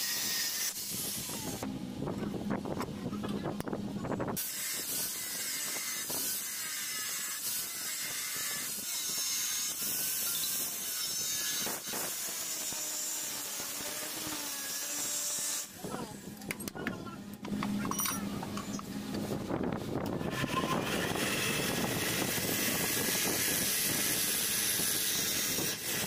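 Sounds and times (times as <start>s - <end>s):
angle grinder cutting metal: 0.0s - 1.7s, 4.4s - 16.2s, 20.1s - 26.0s.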